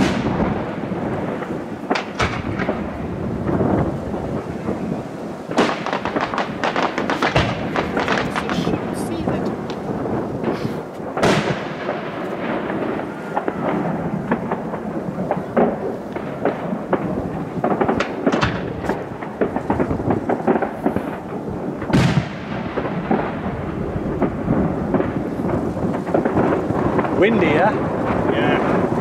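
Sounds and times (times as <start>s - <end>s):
firework pops and crackles: 0.0s - 29.0s
firework shells bursting: 0.0s - 29.0s.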